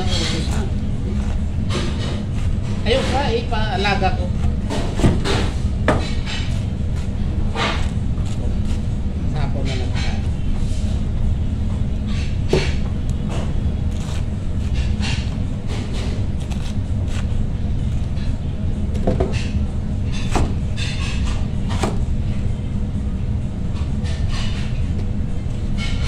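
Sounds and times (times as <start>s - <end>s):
knife chopping cabbage on board: 12.2s - 18.0s.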